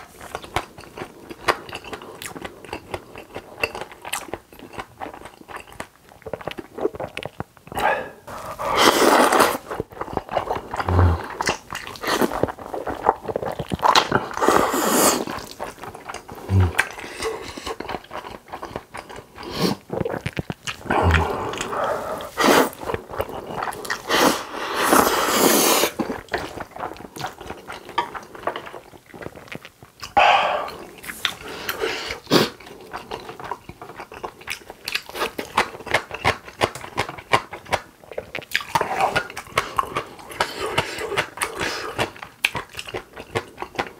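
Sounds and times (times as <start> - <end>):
wet chewing: 0.0 - 43.9
person slurping noodles: 7.8 - 9.8, 10.7 - 12.3, 14.3 - 15.5, 16.4 - 17.8, 19.4 - 20.2, 20.8 - 26.0, 30.2 - 32.6.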